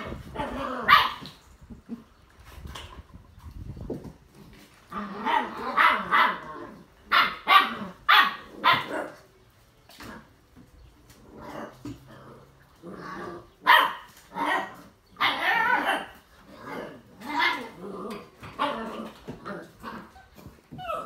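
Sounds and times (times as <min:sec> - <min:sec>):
puppies barking: 0:00.0 - 0:01.4, 0:05.0 - 0:09.2, 0:12.8 - 0:17.8.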